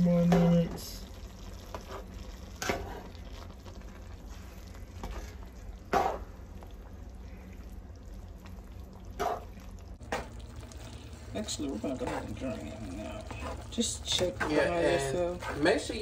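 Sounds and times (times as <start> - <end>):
ground beef sizzling in skillet: 0.0 - 7.1.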